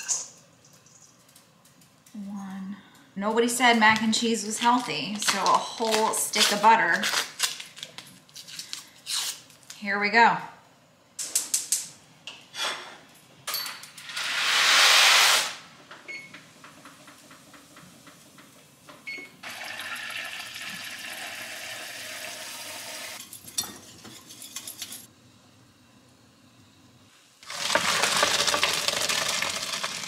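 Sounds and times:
loud hiss: 14.2 - 15.7
dry pasta rattling into pot: 27.4 - 30.0.

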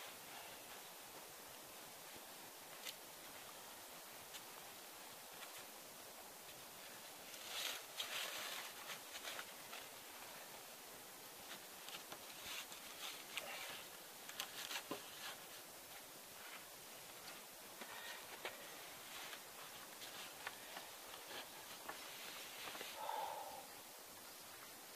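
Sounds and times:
rustling and scraping of tarp: 6.8 - 10.2, 11.4 - 23.0.

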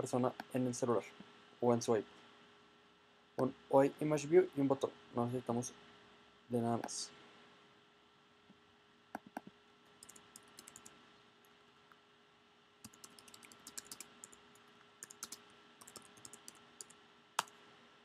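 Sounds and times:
faint keyboard typing: 9.1 - 12.0, 12.8 - 17.6.

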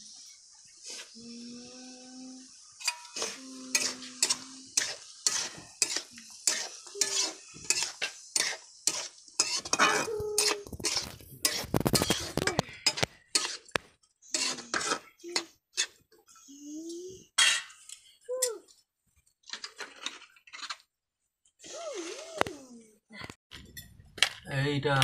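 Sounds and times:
frying sizzle: 0.0 - 16.5
metal spatula scraping pan: 0.8 - 1.4, 2.4 - 16.4, 17.4 - 18.2, 19.4 - 20.9.

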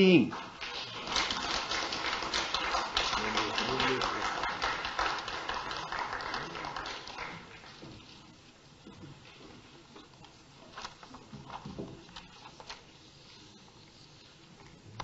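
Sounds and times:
small group applauding: 0.2 - 7.8.

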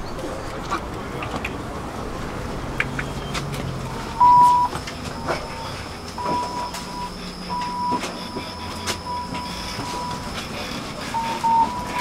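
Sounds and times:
tram rumbling on rails: 0.0 - 12.0
tram wheels squealing: 2.9 - 12.0.

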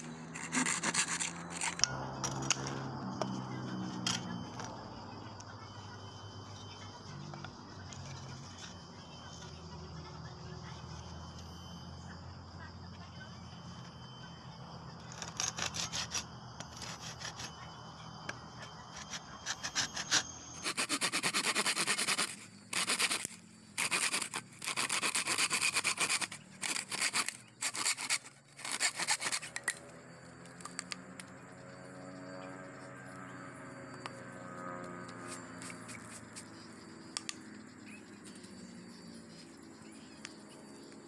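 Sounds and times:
saw cutting through bamboo: 0.0 - 4.7, 15.0 - 29.8.

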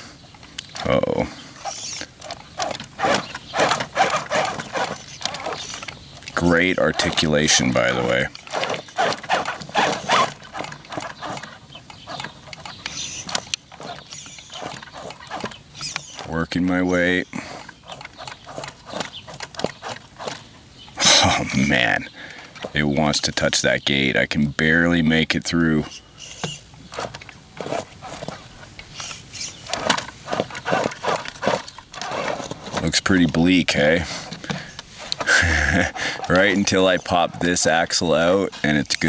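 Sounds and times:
electric motor and gears whirring: 0.0 - 39.0
tires scrabbling on rock: 0.0 - 39.0
sharp clicks: 0.3 - 16.4, 17.5 - 21.0, 26.2 - 33.5.

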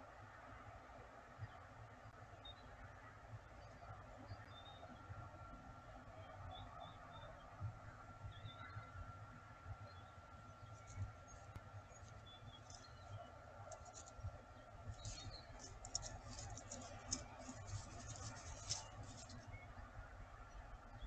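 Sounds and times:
scratching on gravel: 13.7 - 14.2, 14.9 - 19.5.

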